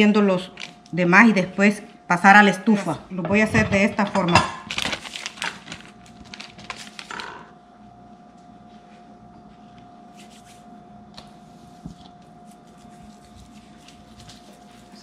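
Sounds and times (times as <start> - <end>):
hands rustling dough and plastic: 4.6 - 7.3, 8.6 - 15.0.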